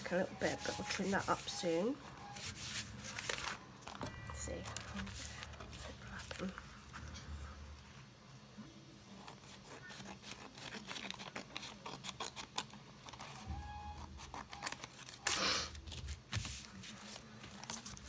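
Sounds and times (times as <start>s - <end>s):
paper sheet rustling: 0.0s - 7.0s, 14.2s - 18.0s
scissors snipping paper: 9.1s - 13.4s, 14.0s - 18.0s.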